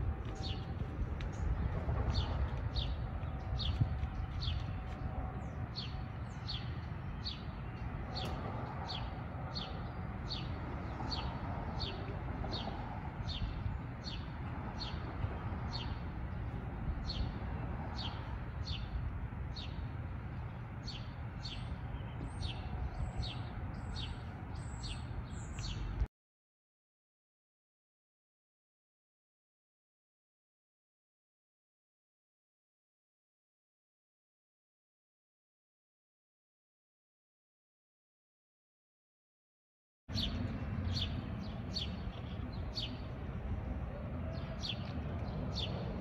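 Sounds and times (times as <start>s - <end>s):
steady low rumble: 0.0s - 26.1s, 40.1s - 46.0s.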